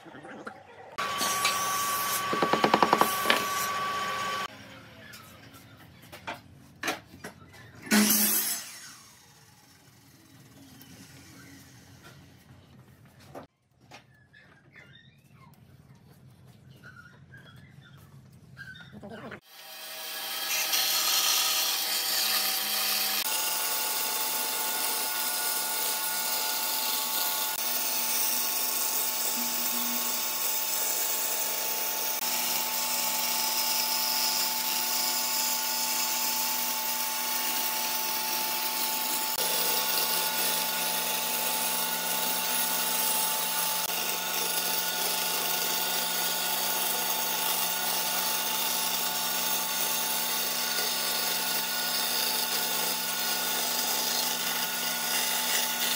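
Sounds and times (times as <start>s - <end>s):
bandsaw cutting wood: 1.0s - 4.5s, 7.9s - 9.3s, 19.4s - 55.9s.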